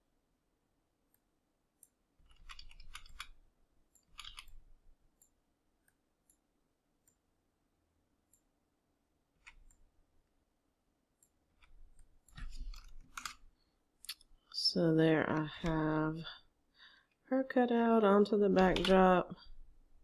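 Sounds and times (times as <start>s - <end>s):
mouse and keyboard clicks: 1.8s - 6.4s, 9.4s - 9.9s, 11.2s - 13.5s, 18.6s - 19.1s.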